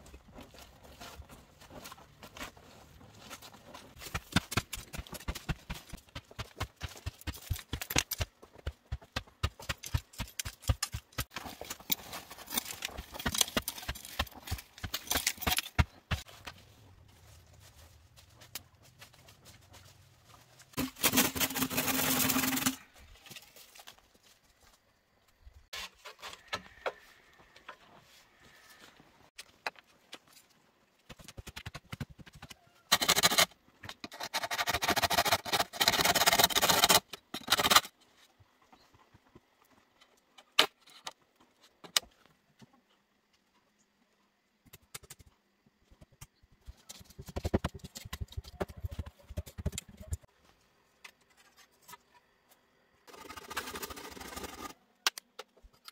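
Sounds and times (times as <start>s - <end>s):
blade scraping soil: 20.7s - 23.2s, 53.1s - 54.8s
machete sawing bamboo: 53.1s - 54.8s.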